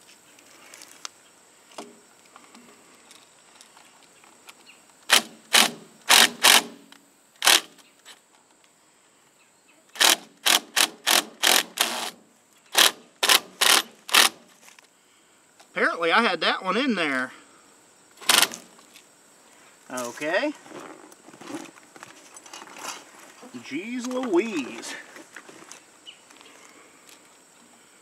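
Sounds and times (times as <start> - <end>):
cordless drill driving screws: 5.1 - 6.7, 7.4 - 7.7, 10.0 - 12.2, 12.8 - 14.3, 18.2 - 18.6.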